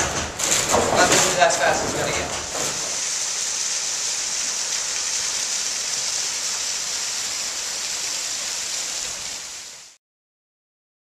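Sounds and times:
water splashing off water wheel: 0.0 - 10.0.

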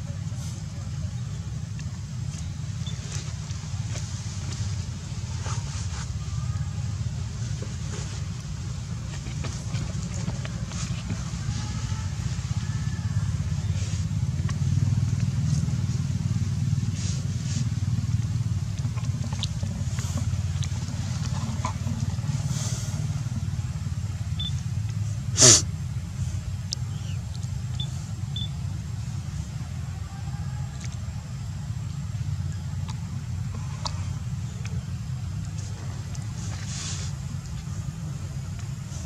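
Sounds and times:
faint high chirps: 24.4 - 24.6, 26.9 - 28.6.

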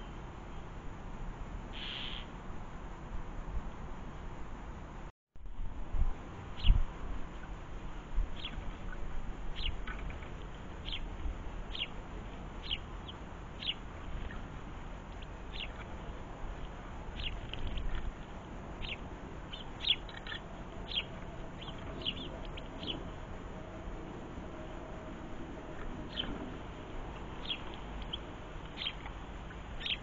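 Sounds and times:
small bird chirping: 1.7 - 2.3, 6.6 - 6.8, 8.4 - 11.1, 11.7 - 12.0, 12.6 - 14.5, 15.1 - 18.2, 18.8 - 23.2, 25.7 - 26.5, 27.3 - 30.0.

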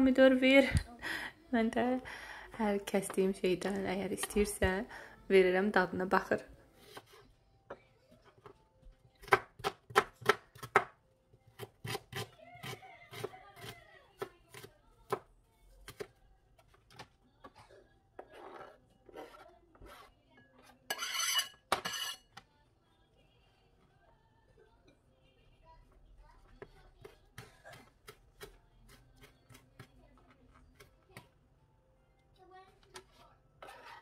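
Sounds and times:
knife chopping on plastic board: 9.2 - 11.0, 11.6 - 17.1
knife scraping board: 18.2 - 20.1, 20.9 - 22.2, 33.6 - 34.0.

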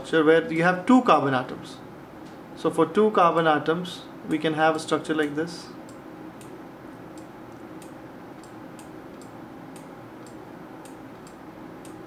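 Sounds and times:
clock ticking: 7.2 - 12.0.

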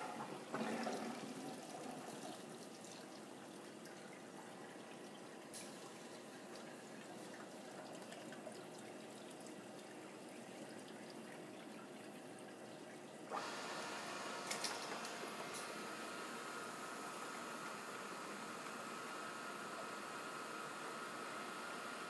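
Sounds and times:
liquid bubbling and trickling: 0.0 - 13.3.

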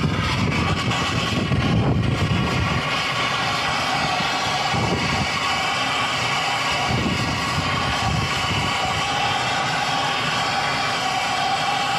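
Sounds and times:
wind gusts on microphone: 0.0 - 2.8, 4.7 - 5.4, 6.8 - 9.1
torch flame hissing: 0.0 - 11.9.

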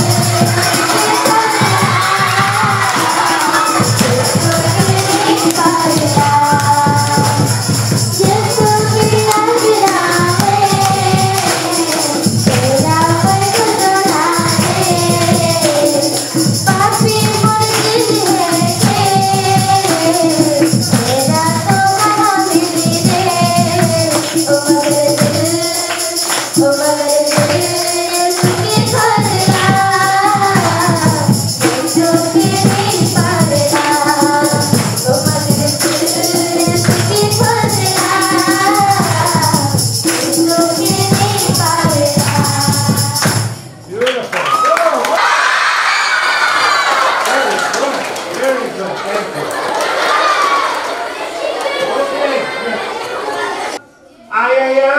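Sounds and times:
person singing over a beat: 0.0 - 43.6
jingling percussion: 0.0 - 44.0.

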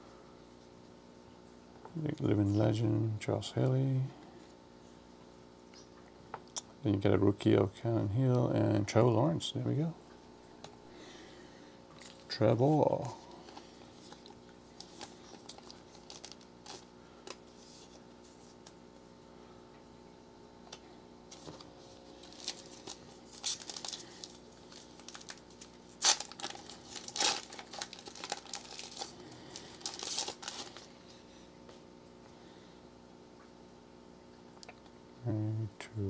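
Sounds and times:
foil wrapper crinkling and tearing: 13.0 - 18.7, 21.3 - 31.2.

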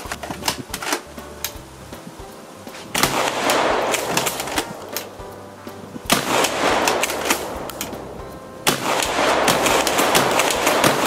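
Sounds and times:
salt shaker gun shots: 2.8 - 5.2, 6.1 - 11.0.

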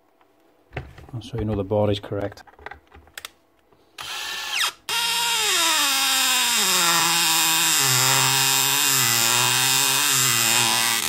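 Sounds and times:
screw squeaking: 4.0 - 11.0.

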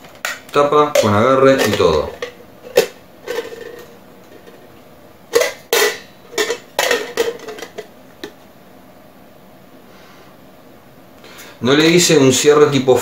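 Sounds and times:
metal lid clinking against mug: 5.4 - 7.9.

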